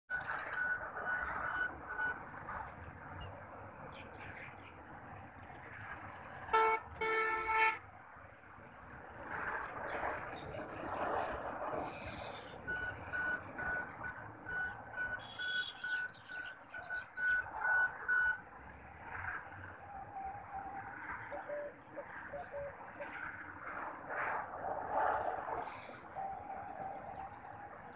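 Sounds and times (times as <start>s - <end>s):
steady background noise: 0.1s - 27.9s
horn blasts: 6.5s - 7.8s
repeating electronic beep: 12.6s - 18.4s.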